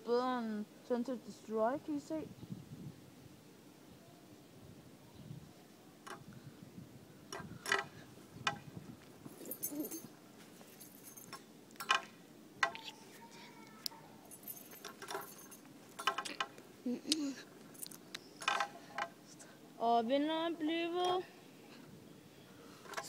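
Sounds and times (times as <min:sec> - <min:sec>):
jingling rattles: 0:07.3 - 0:12.1, 0:14.2 - 0:16.5, 0:17.7 - 0:19.2.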